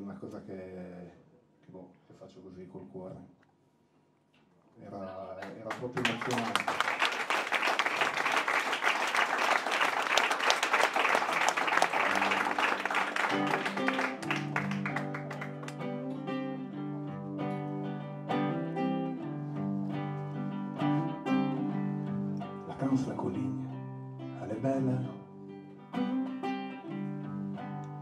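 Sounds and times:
audience clapping: 5.4s - 16.0s
acoustic guitar playing: 11.0s - 28.0s.

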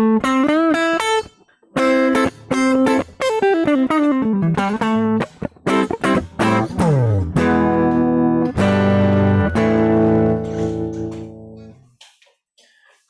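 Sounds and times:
electric guitar: 0.0s - 11.8s.

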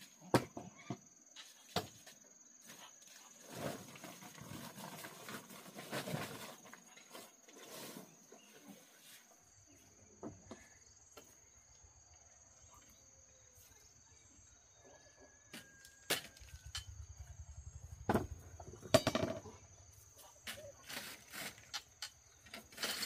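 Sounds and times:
rustling and knocking: 18.0s - 19.6s.

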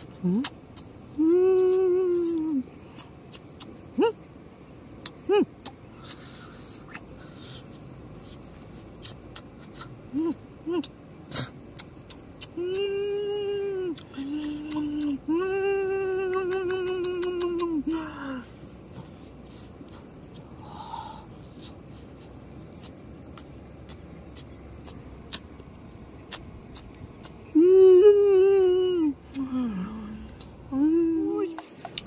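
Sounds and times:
person humming: 1.2s - 2.7s, 10.1s - 10.9s, 12.4s - 18.4s, 27.4s - 31.6s.

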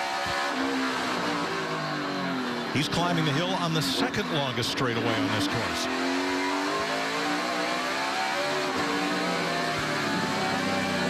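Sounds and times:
race car engine at speed: 0.0s - 11.0s.

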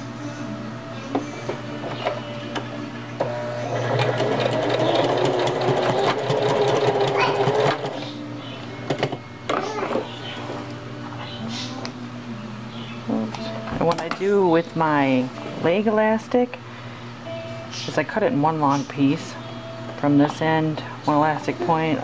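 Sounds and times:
sewing machine stitching fast: 3.7s - 8.0s.

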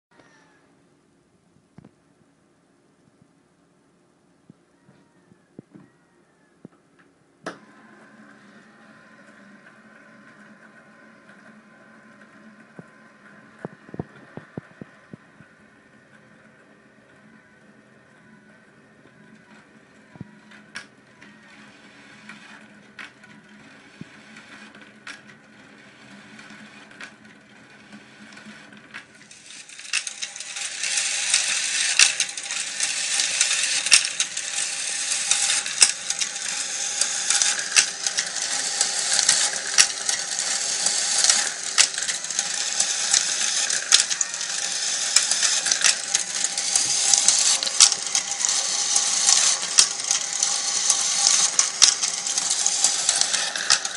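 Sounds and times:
marbles rolling and clacking: 29.2s - 53.9s.

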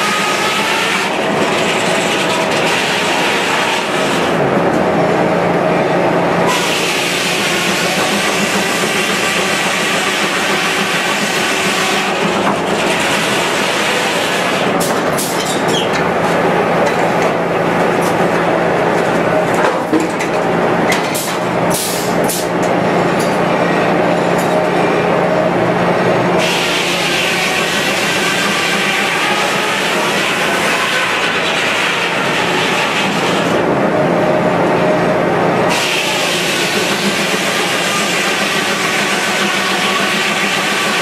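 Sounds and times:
sawmill headsaw and carriage clatter: 0.0s - 4.9s, 6.5s - 23.4s, 26.4s - 33.6s, 35.7s - 41.0s
sharp knocks and clanks: 14.8s - 23.5s.

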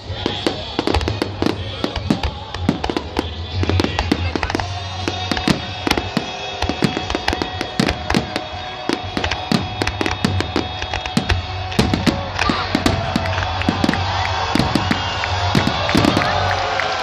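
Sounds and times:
fireworks bangs and crackles: 0.0s - 17.0s
music playing: 0.0s - 17.0s.

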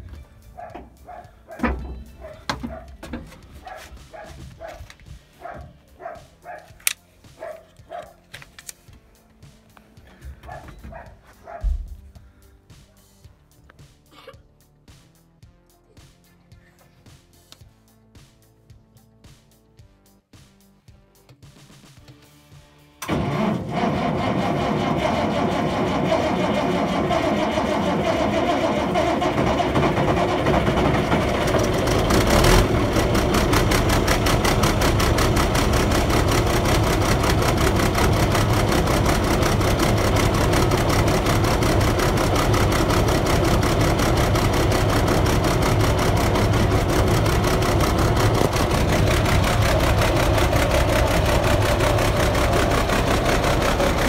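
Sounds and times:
diesel engine running: 0.0s - 7.6s, 23.0s - 54.0s.

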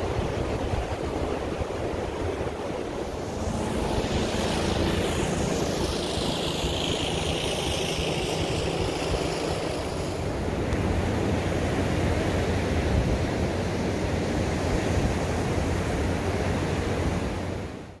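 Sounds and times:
low engine drone: 0.0s - 17.6s
wind noise on microphone: 0.0s - 17.8s
ocean surf breaking: 0.1s - 13.0s.

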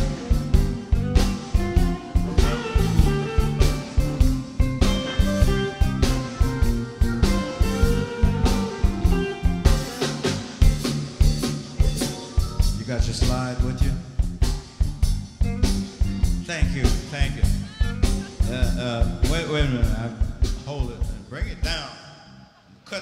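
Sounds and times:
lead guitar bent notes: 0.0s - 13.8s
live blues band playing: 0.0s - 21.7s.

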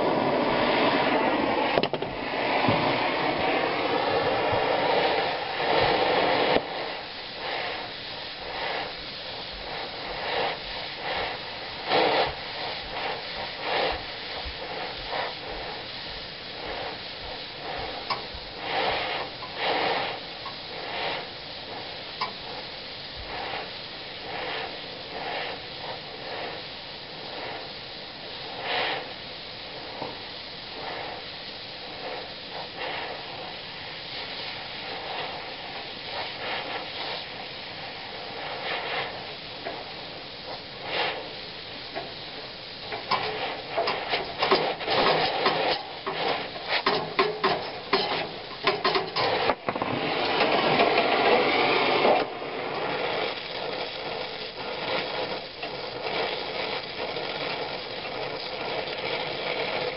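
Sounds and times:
loud rush: 0.0s - 21.7s
torch flame hissing: 0.0s - 59.9s
rapid clicking and rattling: 40.5s - 59.9s.

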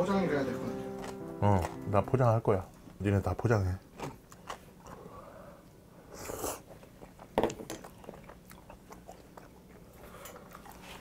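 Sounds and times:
man chewing food: 3.8s - 11.0s.

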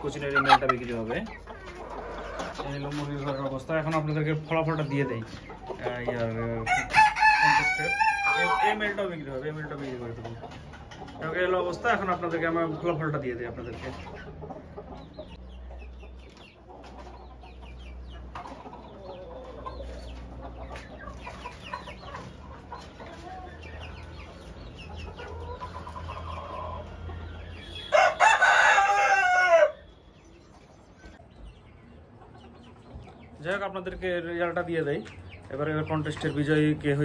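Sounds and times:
chickens clucking: 0.0s - 37.0s
rooster crowing: 6.7s - 8.8s, 27.8s - 29.9s.

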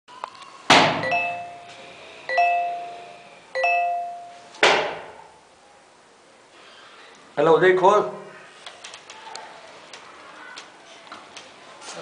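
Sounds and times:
doorbell chiming: 1.0s - 4.5s
sharp bang: 4.6s - 5.2s.

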